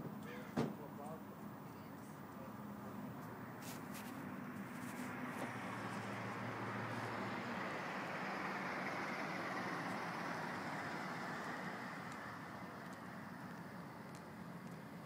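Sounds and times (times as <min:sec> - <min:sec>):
passing vehicle rumble: 0:01.0 - 0:15.0.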